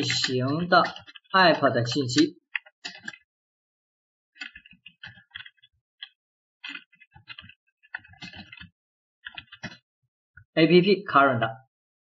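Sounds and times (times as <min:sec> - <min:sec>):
keyboard typing clicks: 0:00.0 - 0:03.2, 0:04.4 - 0:09.8.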